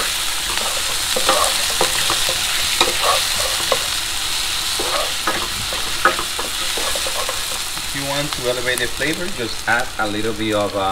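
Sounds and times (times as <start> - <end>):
utensil scraping a pan: 0.0 - 8.6
vegetables sizzling in oil: 0.0 - 10.9.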